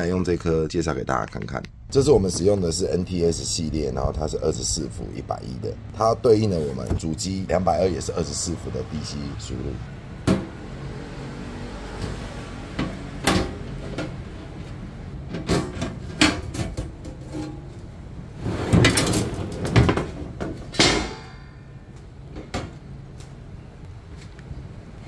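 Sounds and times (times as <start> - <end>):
metal rattling scrape: 13.4 - 21.3.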